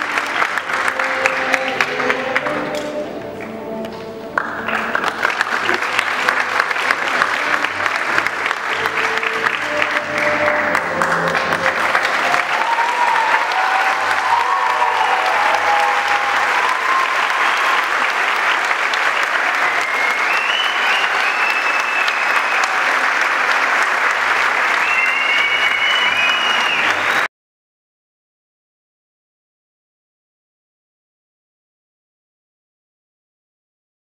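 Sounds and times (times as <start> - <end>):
audience applauding: 0.0 - 3.5, 4.3 - 27.3.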